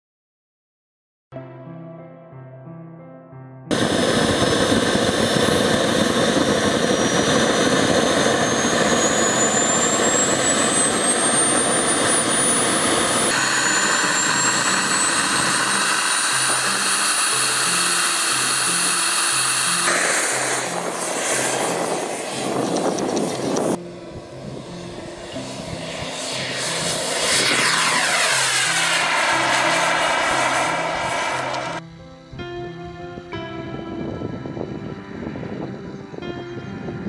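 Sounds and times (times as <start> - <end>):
model jet turbine whine: 3.7 - 31.8.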